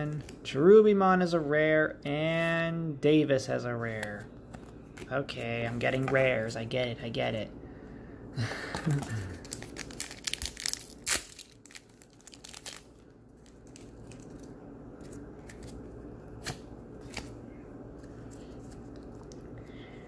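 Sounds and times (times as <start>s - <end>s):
wrapper crinkling and tearing: 8.8s - 17.4s.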